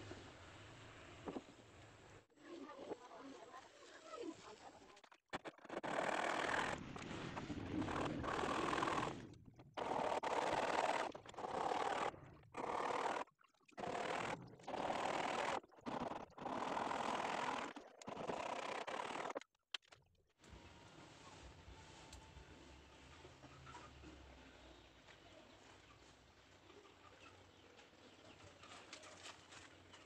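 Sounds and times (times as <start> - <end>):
hand saw cutting wood: 5.4 - 7.0, 7.7 - 9.2, 13.8 - 19.4.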